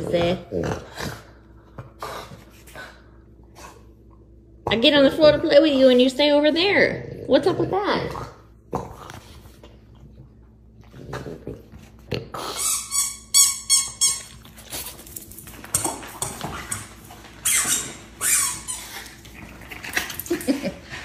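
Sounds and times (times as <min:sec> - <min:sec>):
squeaky dog toy squeaking: 0:12.6 - 0:14.4.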